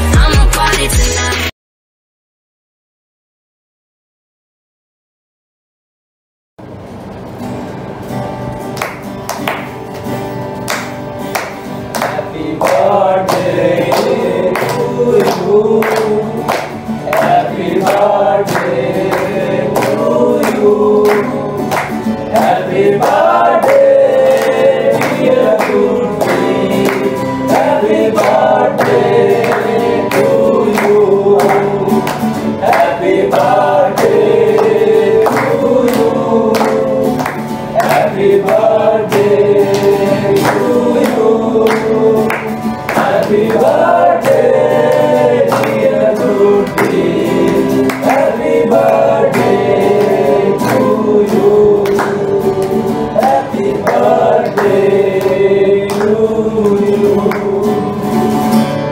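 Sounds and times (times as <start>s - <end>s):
strummed acoustic guitar: 6.6s - 58.9s
hand claps: 8.7s - 58.6s
men singing in unison: 12.0s - 58.4s.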